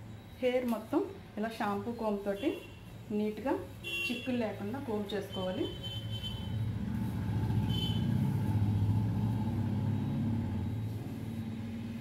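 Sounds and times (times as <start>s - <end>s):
passing road vehicle rumble: 6.4s - 12.0s.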